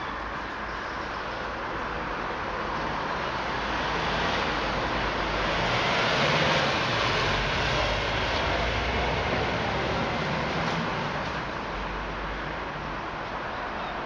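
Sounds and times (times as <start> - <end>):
road traffic noise: 0.0 - 14.0
vehicle passing: 3.8 - 11.4.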